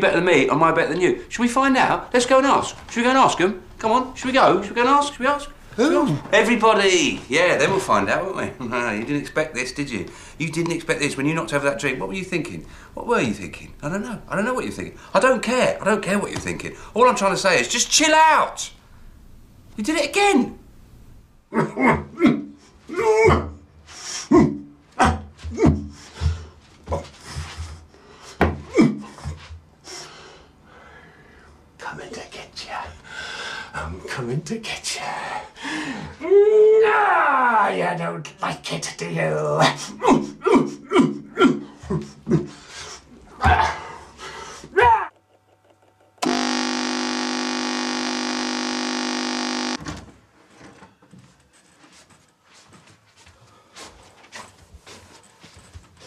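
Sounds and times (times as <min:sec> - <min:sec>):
man grunting and panting: 0:39.9 - 0:42.6
alarm buzzer: 0:46.2 - 0:49.8
alarm switch click: 0:46.2 - 0:49.8.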